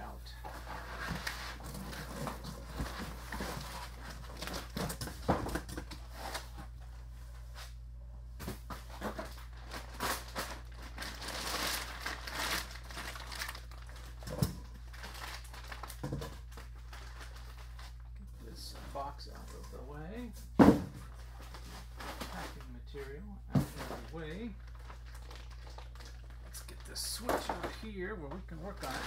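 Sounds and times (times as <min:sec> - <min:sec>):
steady low hum: 0:00.0 - 0:29.0
foam packing rustling: 0:00.5 - 0:07.8, 0:08.4 - 0:19.9, 0:21.0 - 0:23.0, 0:23.6 - 0:29.0
plastic bag crinkling: 0:09.1 - 0:18.2, 0:24.0 - 0:29.0.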